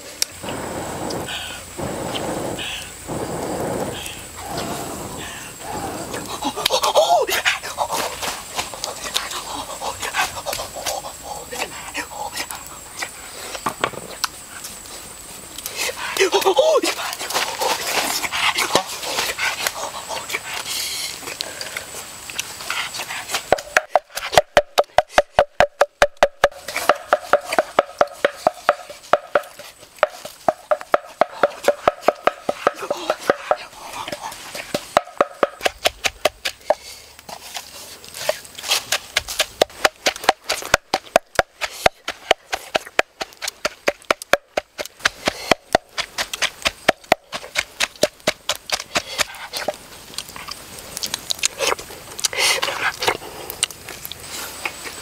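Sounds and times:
rustling: 36.4 - 43.8.

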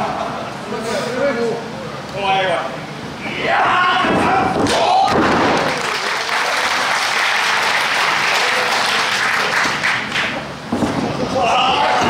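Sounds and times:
audience applauding: 5.5 - 10.4.

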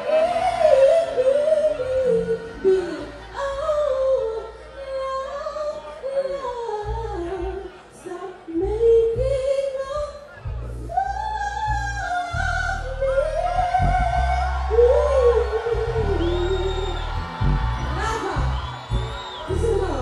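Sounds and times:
woman singing into a microphone: 0.0 - 17.0
backing track with deep bass: 8.6 - 20.0.

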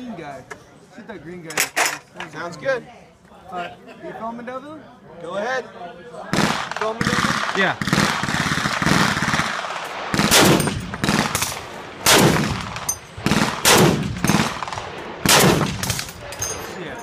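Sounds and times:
rifle shots echoing: 6.3 - 16.8.

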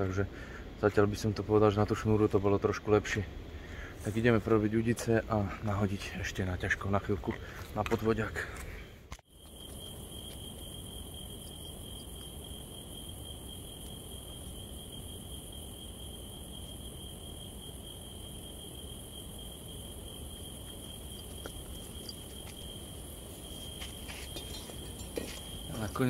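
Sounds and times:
crickets singing: 9.2 - 26.0.

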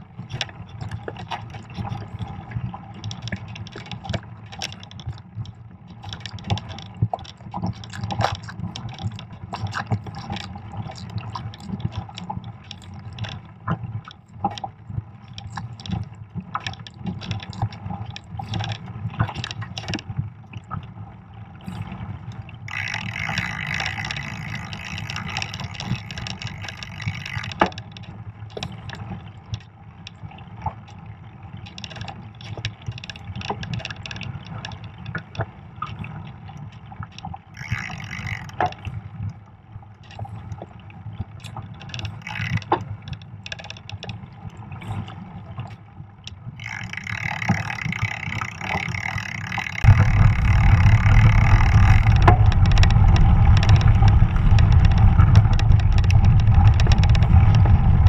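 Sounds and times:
bike knocks and rattles: 46.6 - 58.0
bike riding rumble on snow: 46.6 - 58.0.

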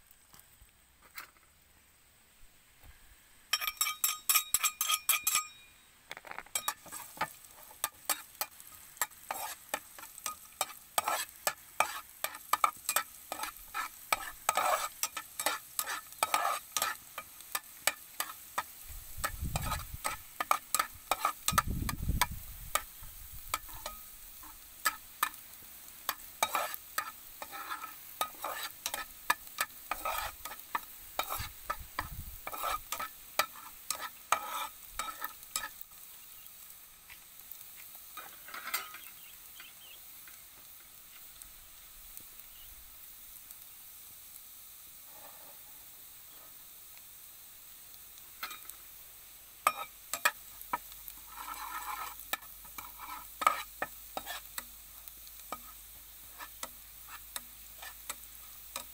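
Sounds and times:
garlic sizzling in oil: 3.4 - 58.9
metal spoon scraping pan: 3.5 - 5.7, 6.5 - 22.0, 23.5 - 25.4, 26.1 - 35.8, 38.2 - 39.1, 48.4 - 48.7, 49.6 - 50.4, 51.2 - 54.7, 55.5 - 58.9.

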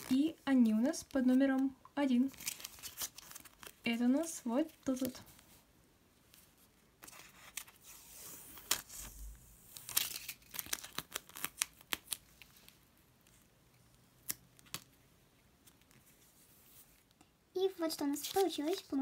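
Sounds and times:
sticker peeling and crinkling: 7.0 - 13.4.

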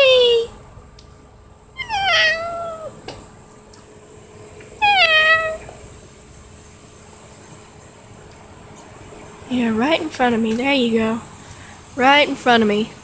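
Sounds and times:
cat meowing: 1.8 - 3.0, 4.8 - 5.8.

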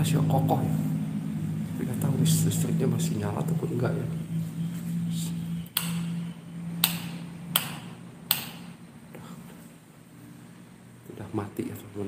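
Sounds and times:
plastic light switch clicking: 5.7 - 6.1, 6.8 - 8.6.

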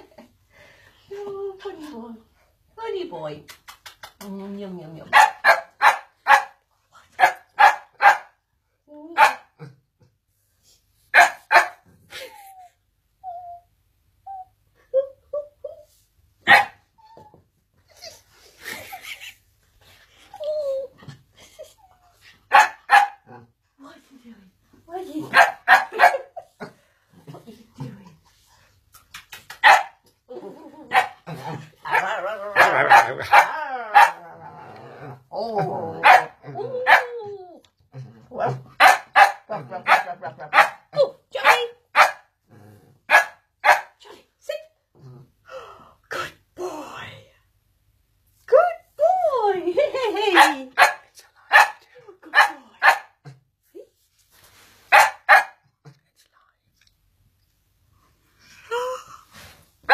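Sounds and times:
dog barking: 5.1 - 6.6, 7.2 - 8.4, 11.1 - 11.8, 16.5 - 16.8, 22.5 - 23.2, 25.3 - 26.3, 29.6 - 30.0, 31.9 - 34.2, 36.0 - 37.1, 38.8 - 40.8, 41.4 - 42.3, 43.1 - 44.0, 50.4 - 51.8, 52.4 - 53.2, 54.9 - 55.6
dog whiny growling: 30.3 - 36.8
dog barking sharply: 54.9 - 55.6.

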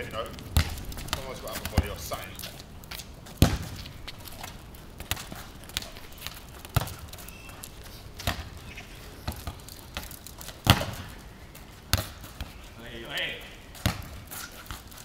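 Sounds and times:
football thudding on tarmac: 0.4 - 8.6, 9.2 - 11.2, 11.9 - 12.6, 13.7 - 15.0.

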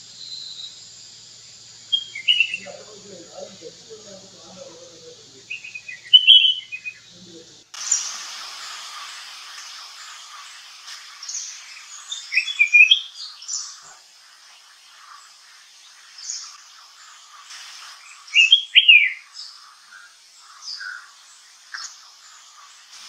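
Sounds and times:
faint chirping: 0.0 - 23.0
bird whistling song: 0.1 - 0.8, 1.9 - 2.8, 5.4 - 7.1, 11.2 - 13.8, 18.2 - 21.1.

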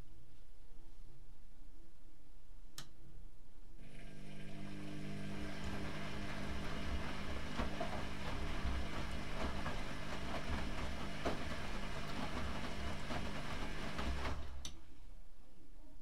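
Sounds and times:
washing machine motor hum: 3.8 - 14.9
laundry knocking in drum: 6.7 - 14.5.

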